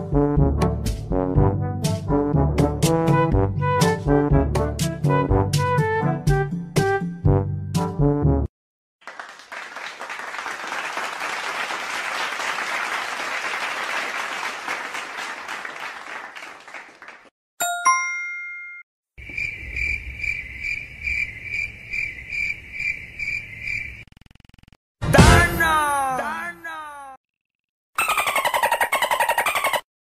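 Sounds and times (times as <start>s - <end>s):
applause: 9.0s - 17.3s
bright ding: 17.6s - 18.8s.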